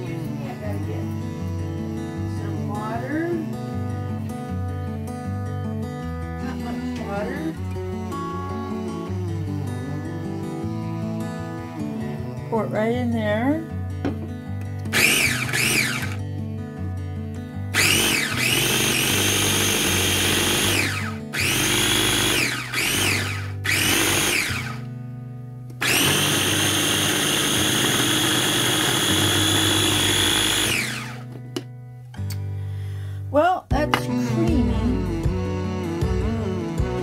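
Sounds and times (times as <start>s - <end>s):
food chopper motor whirring: 14.9s - 16.2s, 17.7s - 24.9s, 25.7s - 31.4s.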